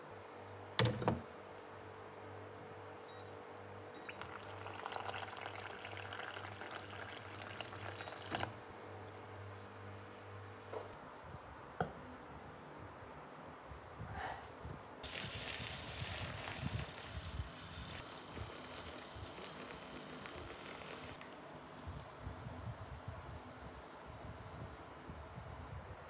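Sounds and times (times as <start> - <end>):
water pouring into a cup: 4.1 - 8.6.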